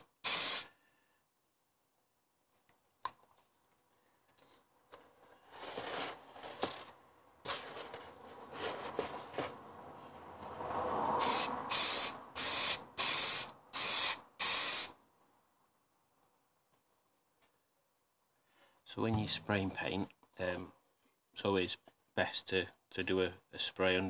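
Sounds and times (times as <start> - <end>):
aerosol spray can hissing: 0.0 - 0.7, 11.2 - 14.9
scraping and rustling in cardboard box: 5.0 - 9.6.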